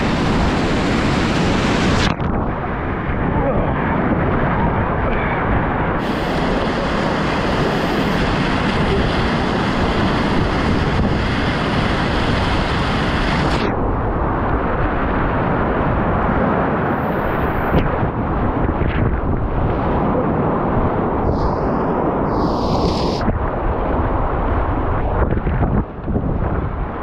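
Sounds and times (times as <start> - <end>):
spray splashing: 6.0 - 13.6, 21.3 - 23.2
whitewater rapids rushing: 6.0 - 13.6.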